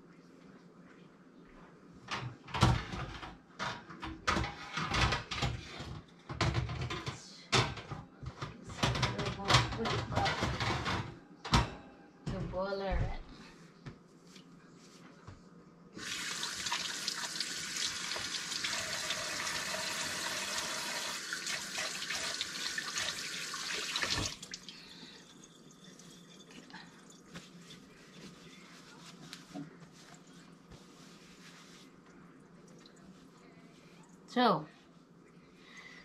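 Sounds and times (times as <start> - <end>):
faucet running: 16.0 - 26.6.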